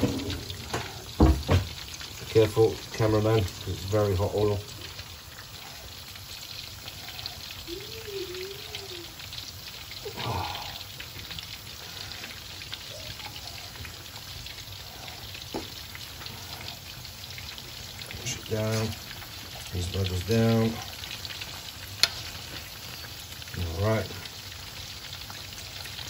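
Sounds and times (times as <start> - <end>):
chicken deep-frying in oil: 0.0 - 26.0.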